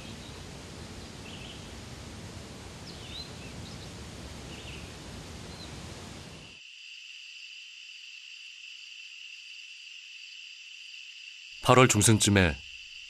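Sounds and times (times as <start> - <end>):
faint bird chirps: 0.0 - 1.8, 2.8 - 6.6
rushing outdoor haze: 0.0 - 6.6.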